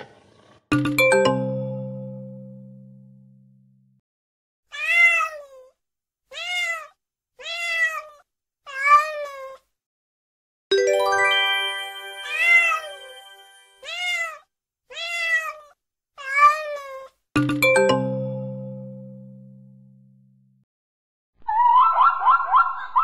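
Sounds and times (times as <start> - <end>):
bright chime: 0.7 - 2.8, 10.7 - 13.8
cat meowing: 4.7 - 9.6, 13.8 - 17.2.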